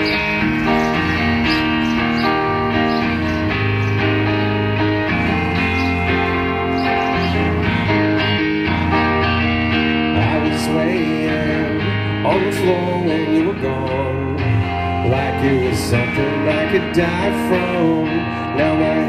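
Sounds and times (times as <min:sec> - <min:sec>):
rock band playing: 0:00.0 - 0:19.0
person singing: 0:05.0 - 0:19.0.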